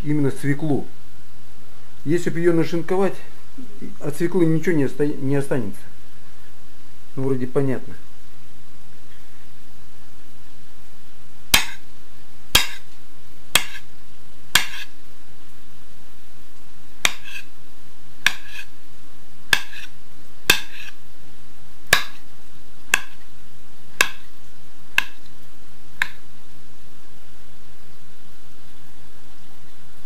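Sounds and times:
knife chopping on wooden board: 11.5s - 11.8s, 12.6s - 12.9s, 13.6s - 13.8s, 14.6s - 14.9s, 17.0s - 17.5s, 18.2s - 18.7s, 19.5s - 19.9s, 20.5s - 21.0s, 21.9s - 22.2s, 22.9s - 23.2s, 24.0s - 24.3s, 25.0s - 25.2s, 26.0s - 26.2s.

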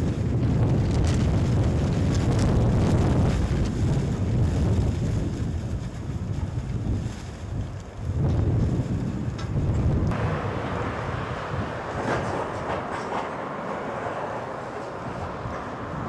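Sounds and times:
wind buffeting microphone: 0.0s - 16.0s
plastic bags flapping: 0.5s - 9.4s.

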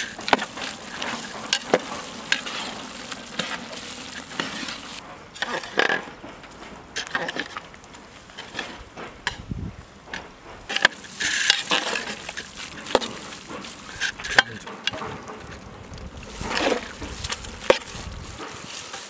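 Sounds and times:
gravy simmering: 0.0s - 5.6s, 9.9s - 19.0s
ladle clinking and scraping pot: 0.0s - 6.1s, 10.7s - 19.0s.

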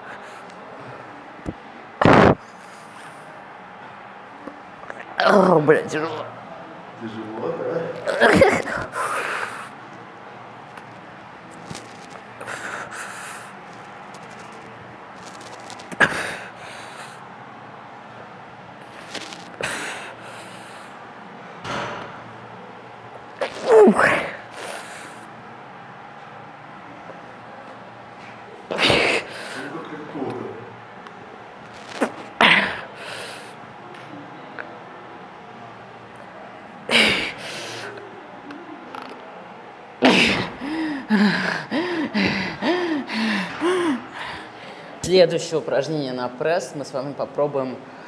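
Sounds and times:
woman strained groan: 23.4s - 24.4s
woman gasping and groaning: 40.0s - 44.4s
woman breathing hard: 40.1s - 45.0s.

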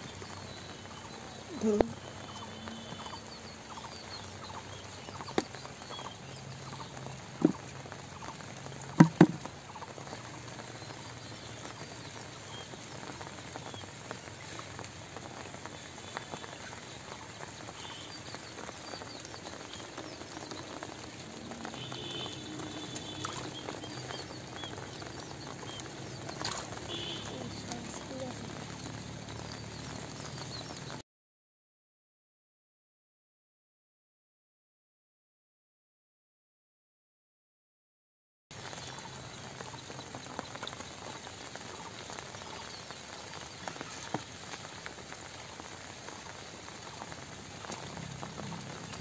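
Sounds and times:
sharp knocks: 9.0s - 9.4s
squelching through wet mud: 17.7s - 28.4s.

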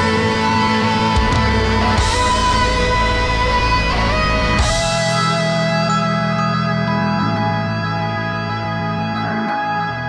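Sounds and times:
guitar rock music: 0.0s - 10.0s.

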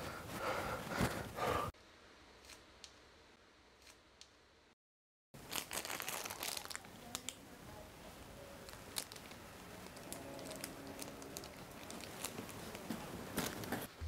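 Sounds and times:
plastic packet crinkling: 5.4s - 7.4s, 8.6s - 13.9s.

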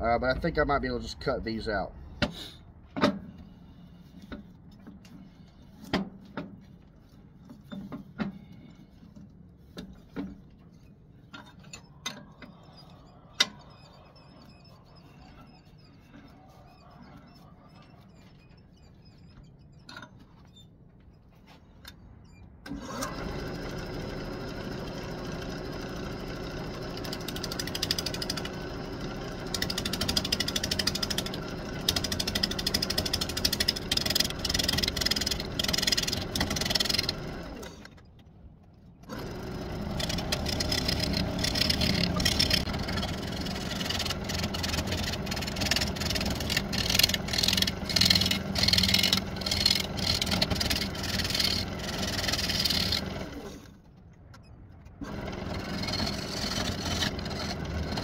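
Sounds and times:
lathe electric motor running: 22.9s - 37.8s, 39.1s - 53.6s, 55.0s - 58.0s.

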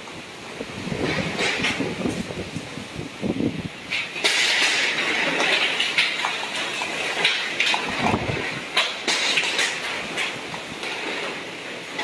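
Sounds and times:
storm wind rushing: 0.0s - 8.8s
wind buffeting microphone: 0.0s - 8.8s
rattling and knocking clatter: 0.9s - 2.4s, 3.9s - 12.0s.

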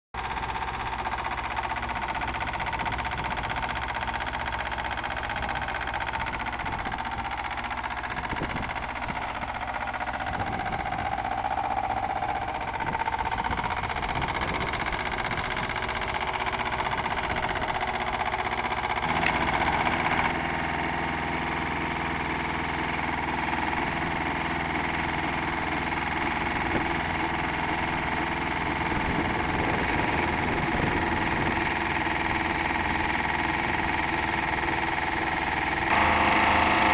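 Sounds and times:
drill rig engine running: 0.2s - 36.9s.

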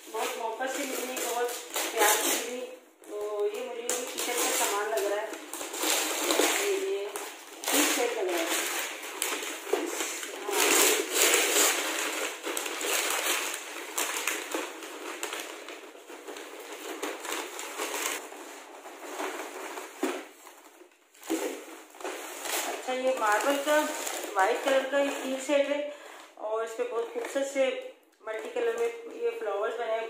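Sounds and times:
wrapping paper crinkling and tearing: 0.0s - 25.7s.

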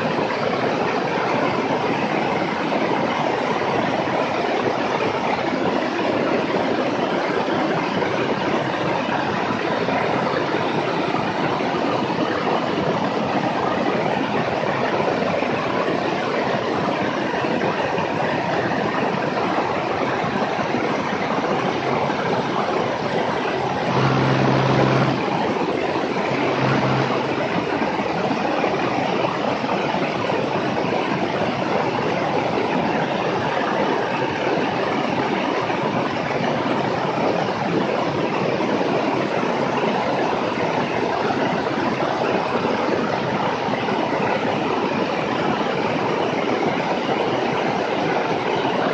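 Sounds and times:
airplane engine and propeller: 20.5s - 28.6s
low steady tone: 23.4s - 27.8s.

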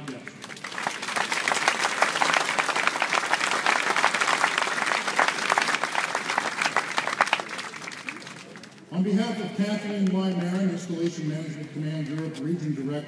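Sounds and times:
audience applauding: 0.3s - 8.8s.

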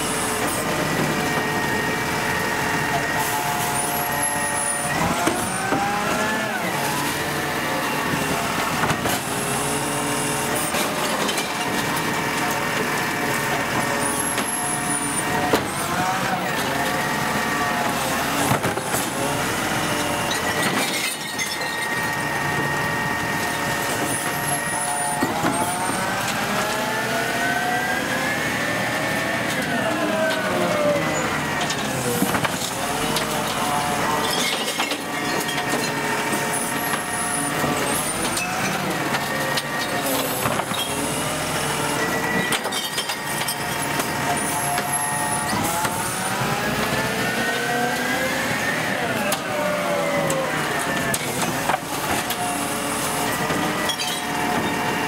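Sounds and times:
truck diesel engine revving: 43.6s - 55.0s.

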